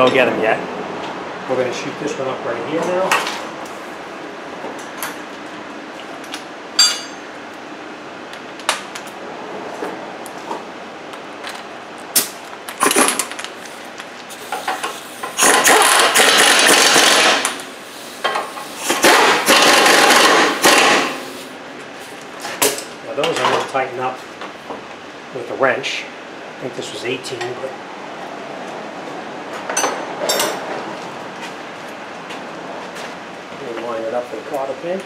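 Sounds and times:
air impact wrench hammering: 14.5s - 21.5s.

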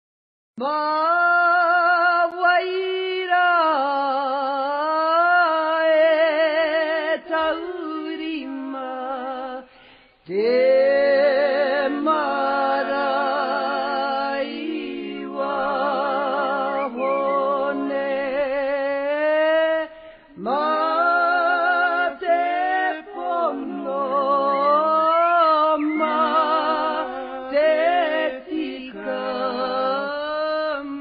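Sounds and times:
person singing unaccompanied: 0.6s - 31.0s.

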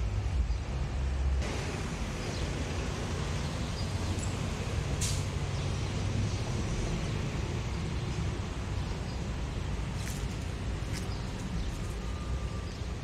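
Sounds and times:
traffic rumble: 0.0s - 13.0s
short sharp hiss: 5.0s - 5.3s.

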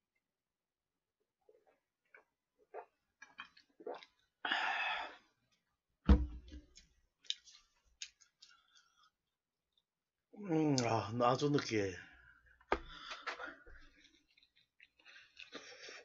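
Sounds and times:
chewing: 1.5s - 4.4s, 13.8s - 16.0s
gulping a drink: 1.5s - 5.4s
bottle set down with a thud: 6.1s - 6.7s.

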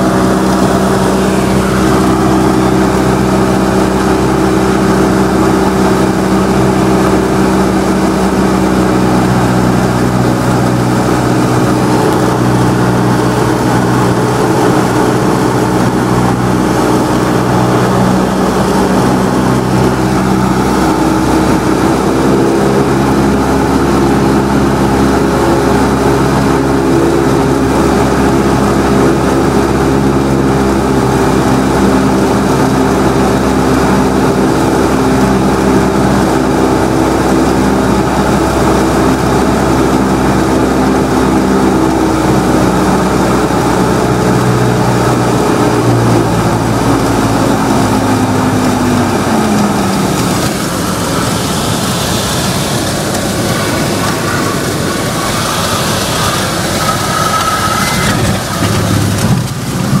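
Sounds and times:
rushing noise: 0.0s - 28.2s, 42.2s - 60.0s
propeller plane engine droning: 0.0s - 60.0s.

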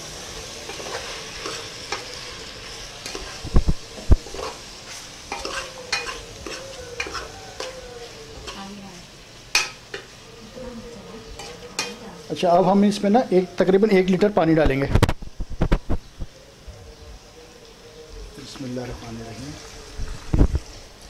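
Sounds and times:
frying sizzle: 0.0s - 21.0s
metal spoon scraping pot: 5.3s - 7.8s.

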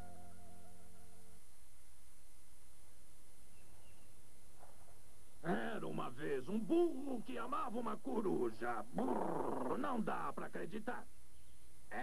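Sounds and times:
faint high chirp: 0.0s - 1.3s, 3.5s - 4.2s
tape hum and hiss: 0.0s - 12.0s.

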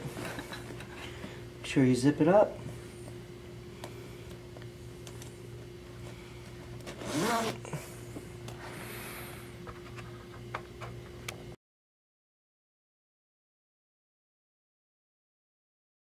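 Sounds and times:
steady low hum: 0.0s - 11.6s
zipper pulled shut: 6.9s - 7.8s.

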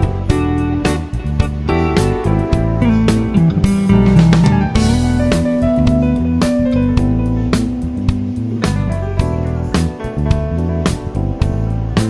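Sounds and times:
guitar music: 0.0s - 12.0s
drum hits: 2.2s - 10.5s.

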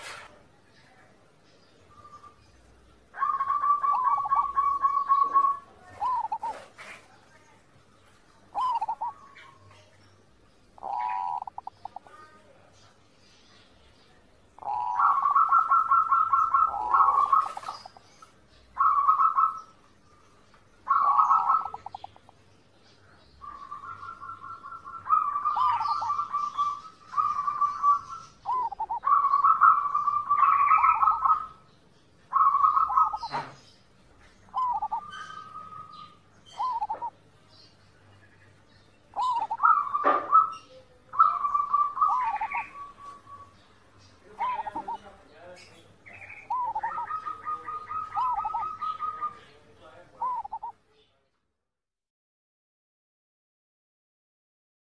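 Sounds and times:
dove cooing: 3.1s - 7.1s, 8.5s - 9.9s, 10.8s - 12.4s, 14.6s - 18.2s, 18.8s - 19.8s, 20.8s - 22.4s, 23.4s - 31.7s, 32.3s - 33.7s, 34.5s - 37.2s, 39.1s - 45.3s, 46.1s - 50.8s.

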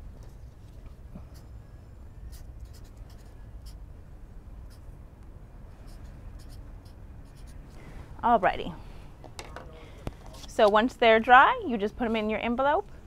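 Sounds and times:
low steady rumble: 0.0s - 9.9s
marker pen scratching on paper: 2.3s - 3.8s, 5.8s - 7.7s.

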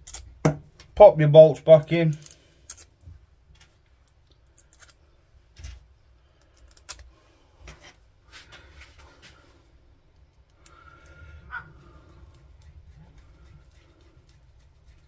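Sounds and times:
small metal parts clicking: 0.0s - 0.3s, 2.1s - 2.9s, 4.0s - 5.0s, 6.4s - 7.1s.

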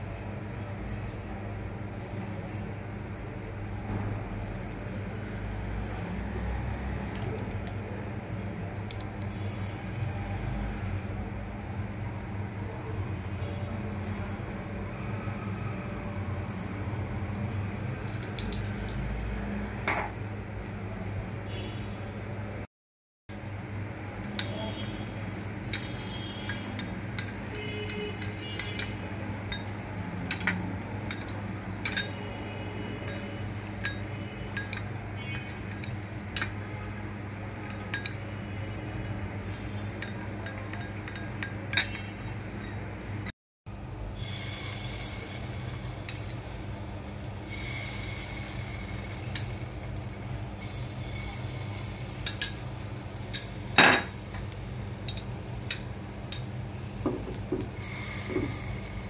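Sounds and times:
spoon clinking on glass bowl: 55.1s - 57.6s.

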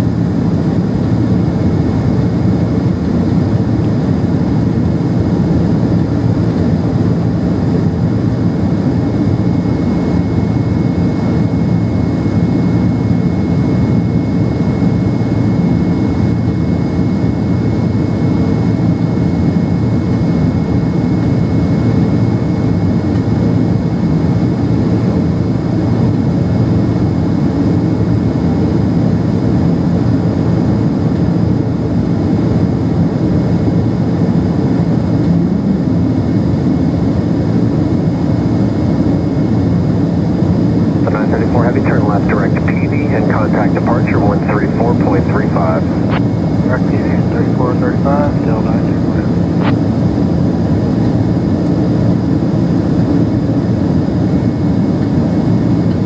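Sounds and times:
jet engines rumbling in cabin: 0.0s - 56.0s
faint high whine: 40.4s - 50.2s.

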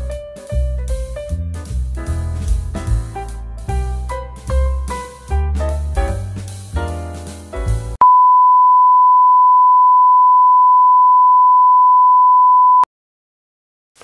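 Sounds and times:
music: 0.0s - 8.0s
steady sine tone beep: 8.0s - 12.9s.

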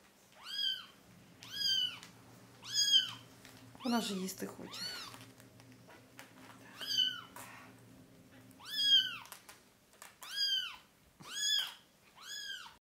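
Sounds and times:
kitten mewing: 0.4s - 2.0s, 2.6s - 3.2s, 4.7s - 5.2s, 6.7s - 7.5s, 8.6s - 9.4s, 10.2s - 12.8s.

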